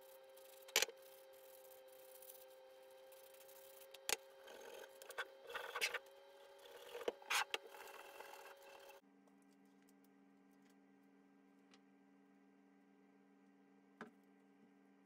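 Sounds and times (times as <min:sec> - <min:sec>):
sandpaper scraping metal: 0:00.0 - 0:06.0, 0:06.6 - 0:09.0
low steady hum: 0:00.0 - 0:15.0.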